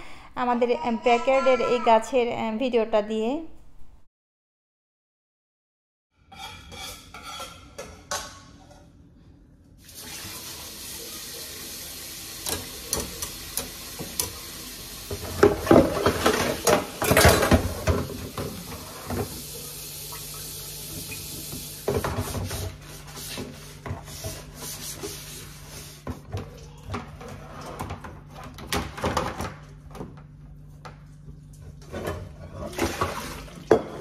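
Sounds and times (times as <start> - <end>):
tap water running into sink: 9.8 - 22.7
things clattering and splashing in sink: 12.4 - 25.2, 26.0 - 34.0.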